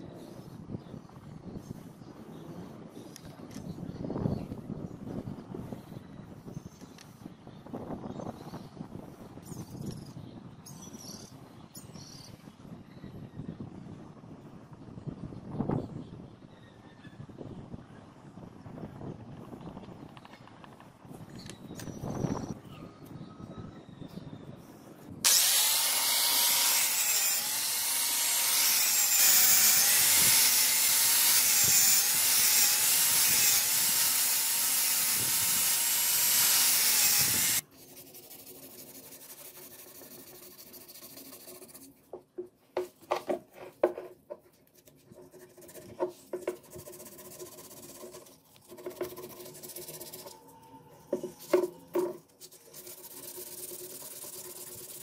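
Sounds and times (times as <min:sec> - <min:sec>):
power tool whining: 0:25.3 - 0:37.6
sandpaper rubbing on wood: 0:25.3 - 0:41.9, 0:44.8 - 0:50.4, 0:52.4 - 0:55.0.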